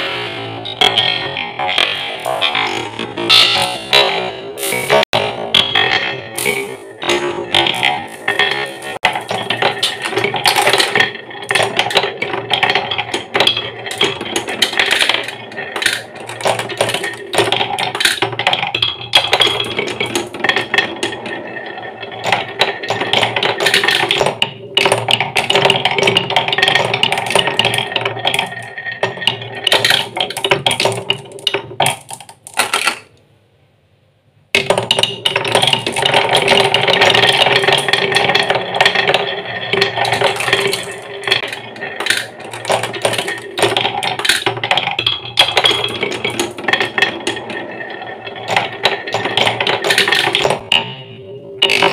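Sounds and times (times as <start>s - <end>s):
marbles rolling on wooden tracks: 0.8s - 4.0s, 4.6s - 33.2s, 34.6s - 51.9s.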